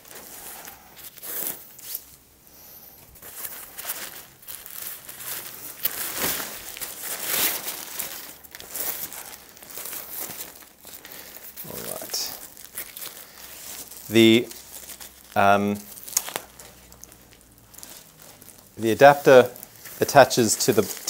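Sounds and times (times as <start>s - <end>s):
fabric crinkling and rustling: 3.0s - 21.0s.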